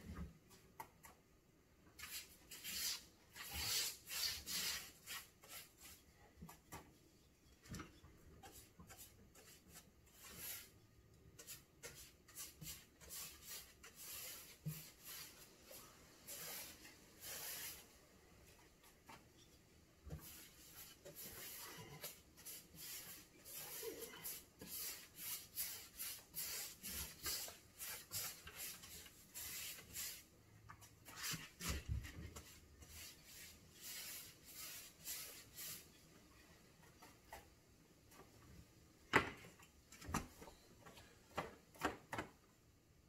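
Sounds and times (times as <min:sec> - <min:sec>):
paintbrush swishing: 0:11.4 - 0:18.0, 0:20.2 - 0:30.3, 0:31.0 - 0:35.9.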